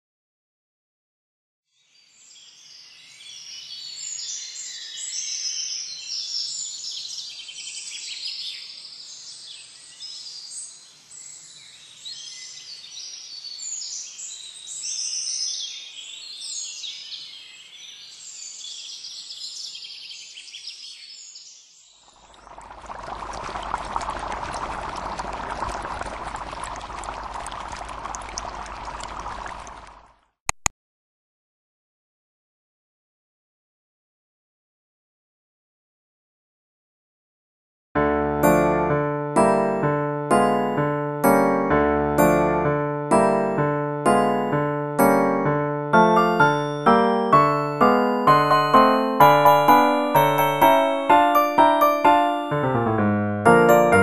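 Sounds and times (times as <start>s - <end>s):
rushing water-like noise: 22.1s - 30.1s
birds chirping: 22.2s - 30.0s
sharp clicks: 30.5s - 30.7s.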